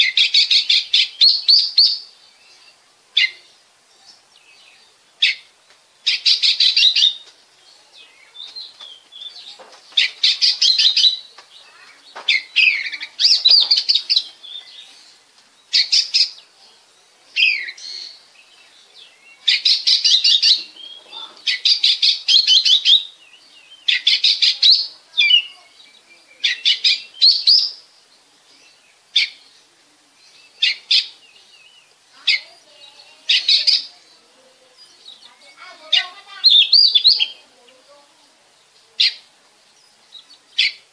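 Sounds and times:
bird singing trilled phrases: 0.0s - 40.9s.

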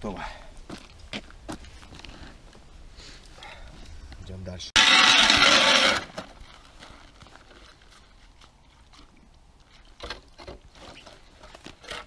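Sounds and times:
ice auger scraping through ice: 4.8s - 6.3s.

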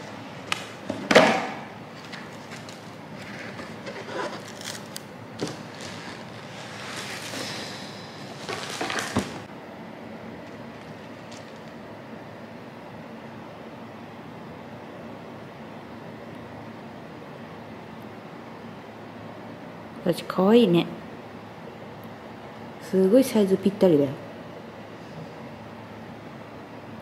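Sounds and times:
room hiss: 0.0s - 27.0s
knocks and scrapes: 2.0s - 4.8s
cardboard box bump and rustle: 8.3s - 9.5s.

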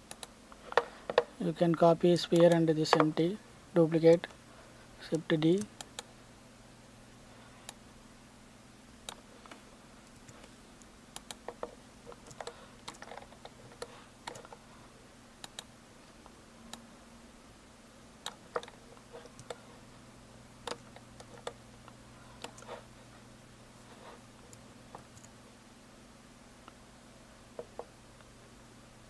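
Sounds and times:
computer keys and mouse clicks: 0.0s - 1.3s, 2.3s - 3.1s, 9.0s - 14.6s, 15.4s - 15.7s, 18.2s - 19.6s, 20.6s - 22.7s, 24.5s - 25.4s
faint steady hum: 0.0s - 29.0s.

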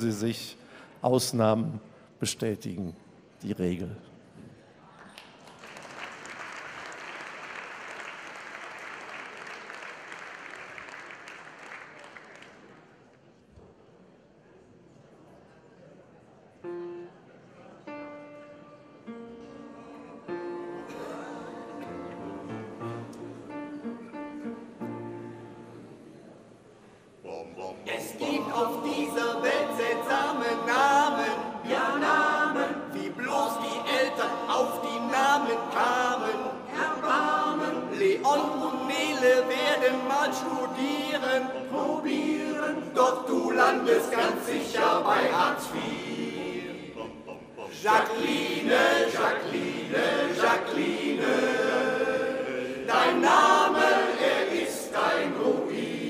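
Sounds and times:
male choir singing a cappella: 20.8s - 22.6s, 27.3s - 56.0s.

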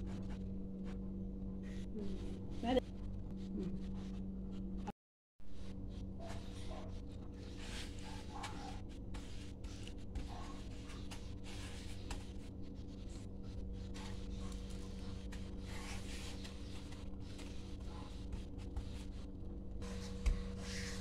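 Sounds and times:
steady low hum: 0.0s - 21.0s
scratchy rubbing on plate: 5.7s - 21.0s.

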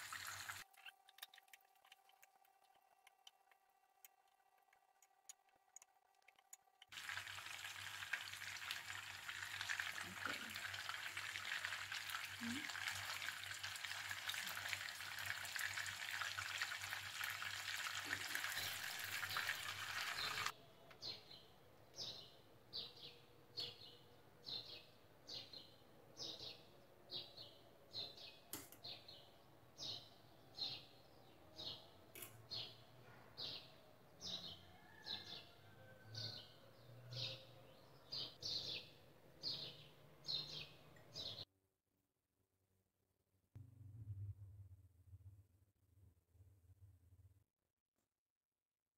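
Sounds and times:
meatballs sizzling in oil: 0.0s - 0.6s, 6.9s - 20.5s.

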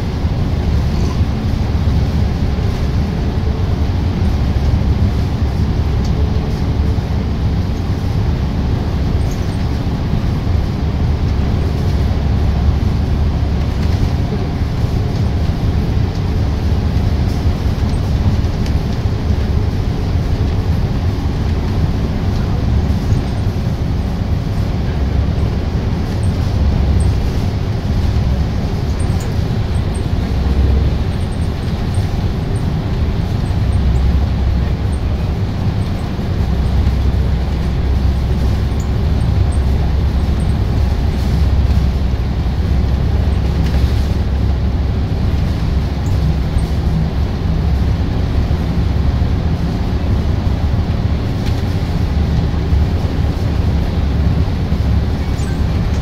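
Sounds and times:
bus engine and tyres rumbling: 0.0s - 56.0s.

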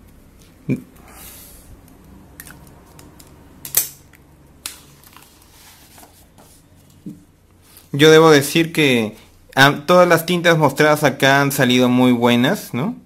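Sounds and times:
paper rustling: 4.7s - 7.0s.

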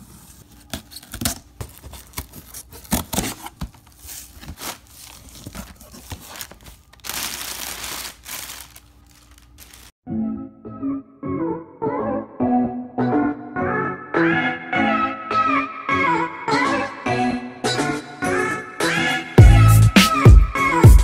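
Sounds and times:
plastic packing crinkling: 0.2s - 10.0s
packing tape tearing: 0.5s - 9.9s.

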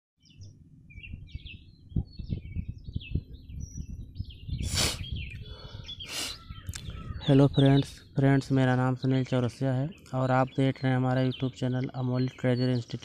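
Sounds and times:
small birds chirping: 0.2s - 13.0s
low rumble: 0.3s - 5.8s
rustling hiss: 4.6s - 5.1s, 6.0s - 6.4s.

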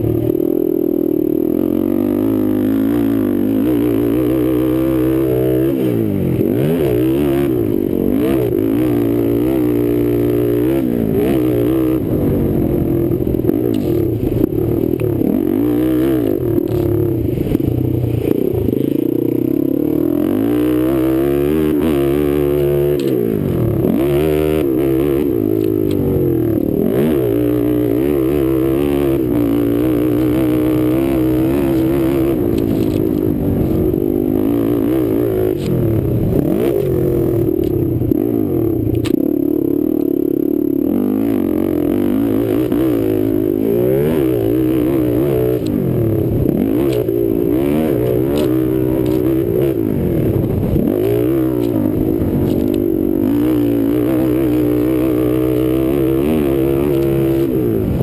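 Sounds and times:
quad engine revving: 0.0s - 58.0s.

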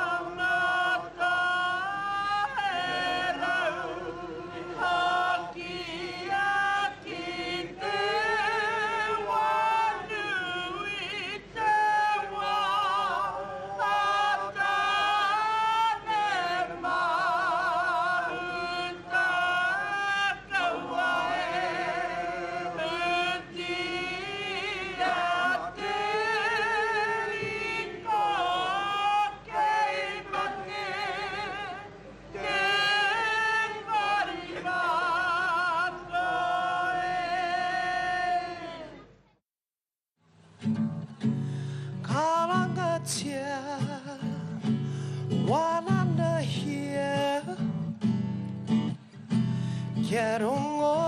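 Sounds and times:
voices singing slow song: 0.0s - 39.2s.

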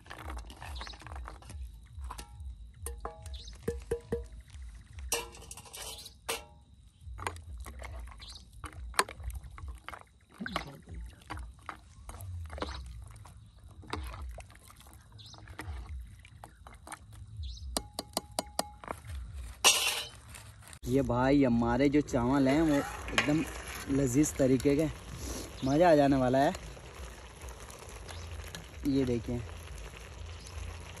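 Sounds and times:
water sloshing in pot: 0.0s - 20.2s, 22.1s - 31.0s
lid and utensil clinking on pot: 5.1s - 6.6s, 19.6s - 20.3s.

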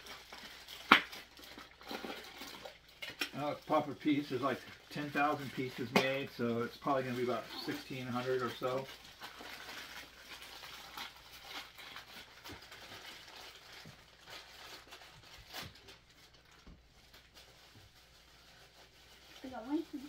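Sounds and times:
plastic packaging rustling: 0.0s - 20.0s.

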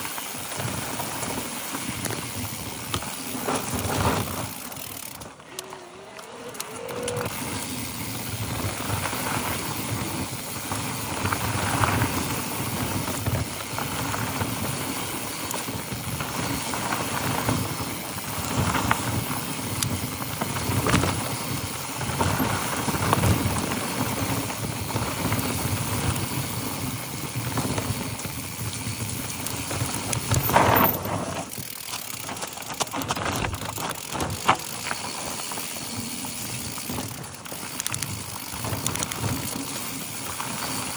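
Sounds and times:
bike rattling over bumps: 0.0s - 40.9s
bike tyres crunching over stones: 0.0s - 40.9s.

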